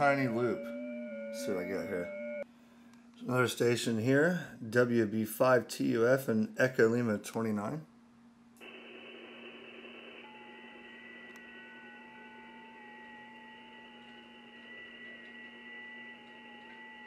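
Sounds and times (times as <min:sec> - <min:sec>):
digital signal tones: 0:00.0 - 0:02.4
low hum: 0:00.0 - 0:02.4, 0:08.6 - 0:17.0
faint radio hiss: 0:08.6 - 0:17.0.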